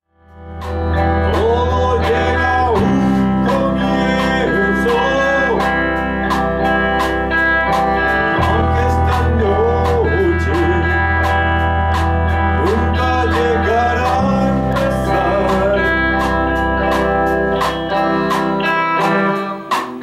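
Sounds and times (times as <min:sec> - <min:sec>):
rock band playing: 0:00.1 - 0:20.0
man singing lead vocal: 0:01.0 - 0:06.3, 0:08.1 - 0:11.7, 0:12.3 - 0:17.0.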